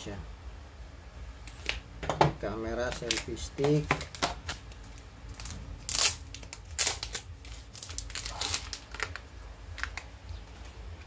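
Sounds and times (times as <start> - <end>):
packaging rustling and scraping: 3.0 - 10.8.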